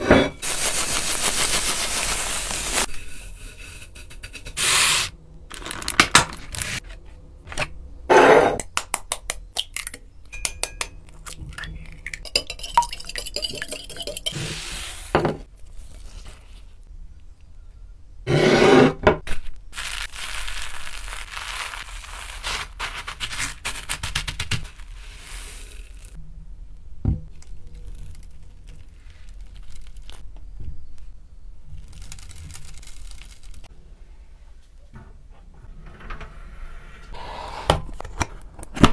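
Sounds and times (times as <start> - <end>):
breadcrumbs crackling and rustling: 0.4 - 2.9, 19.3 - 26.2, 27.3 - 33.7.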